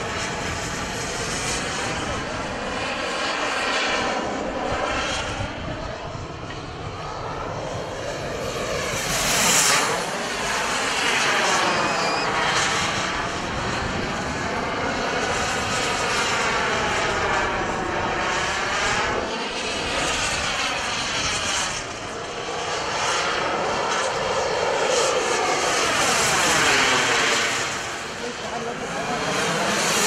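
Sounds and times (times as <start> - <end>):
model jet turbine whine: 0.0 - 30.0.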